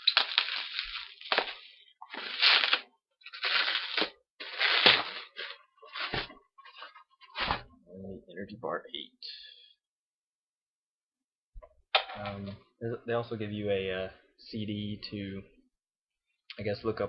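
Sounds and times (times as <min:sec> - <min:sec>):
bubble wrap crinkling and crackling: 0:00.0 - 0:07.4.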